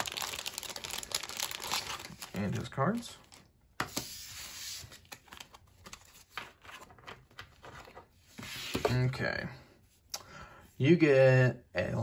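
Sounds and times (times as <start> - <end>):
cards rustling: 0.0 - 9.2.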